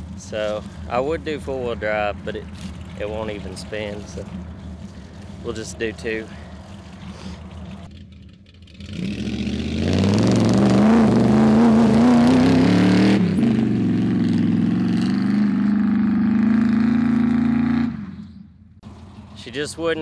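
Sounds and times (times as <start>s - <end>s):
truck engine revving hard: 8.8s - 18.3s.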